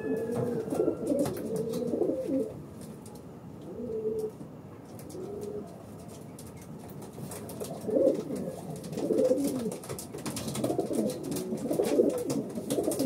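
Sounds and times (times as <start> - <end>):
pigeons cooing: 0.0 - 2.6, 3.6 - 4.4, 5.0 - 5.8, 7.4 - 13.0.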